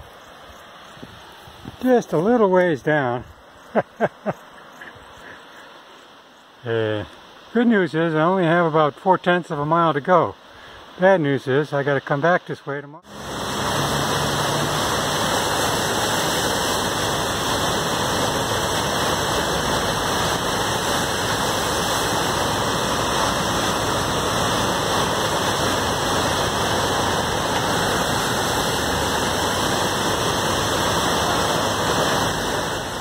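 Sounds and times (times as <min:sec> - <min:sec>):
river whitewater rushing: 0:13.0 - 0:33.0.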